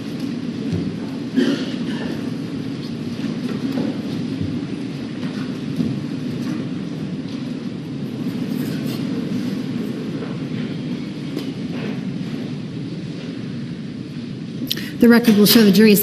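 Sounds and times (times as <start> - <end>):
steady low rumble: 0.0 - 16.0
soft knocks and shuffles: 2.0 - 13.5.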